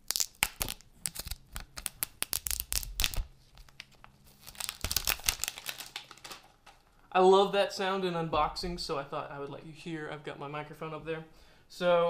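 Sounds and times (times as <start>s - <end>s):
plastic wrap tearing and crinkling: 0.0s - 7.0s.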